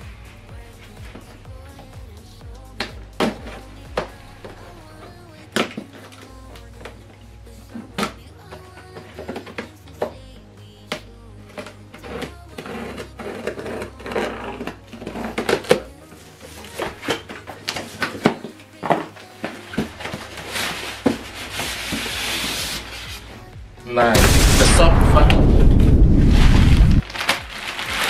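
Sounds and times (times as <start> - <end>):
foam scraping out of box: 12.0 - 17.2, 19.8 - 23.3.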